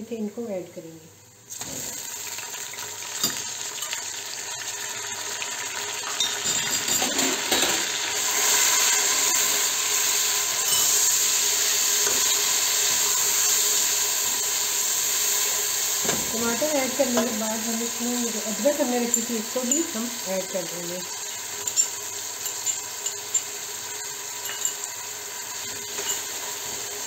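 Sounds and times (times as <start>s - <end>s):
vegetables sizzling in hot oil: 1.4s - 27.0s.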